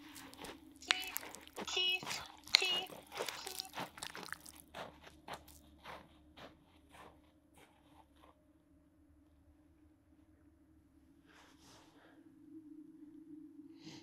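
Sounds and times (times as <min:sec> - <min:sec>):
rhythmic crunching: 0:00.0 - 0:07.1.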